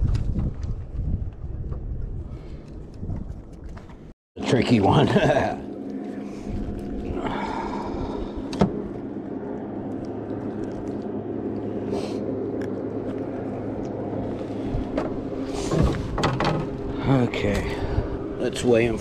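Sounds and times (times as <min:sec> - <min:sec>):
boat motor humming: 0:01.4 - 0:19.0.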